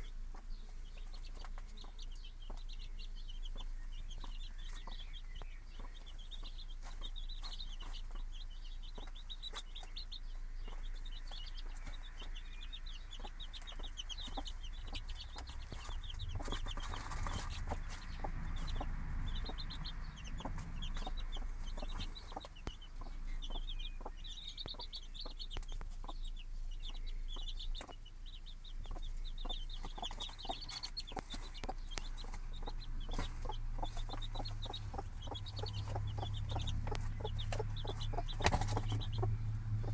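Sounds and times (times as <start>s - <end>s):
chicks peeping: 0.0s - 39.9s
hen clucking softly: 28.8s - 39.9s.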